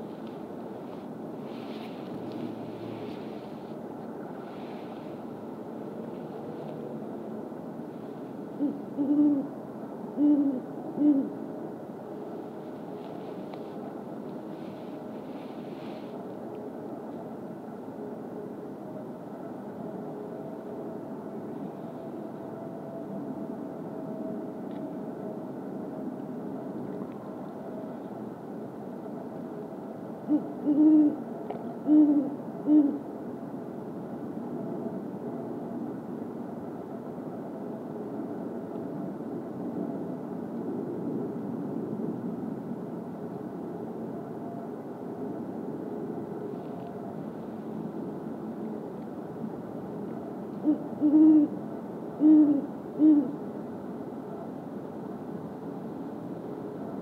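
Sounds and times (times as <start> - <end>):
owl deep hoots: 8.6 - 9.5, 10.1 - 11.4, 30.2 - 31.2, 31.8 - 33.0, 50.6 - 51.6, 52.2 - 53.4.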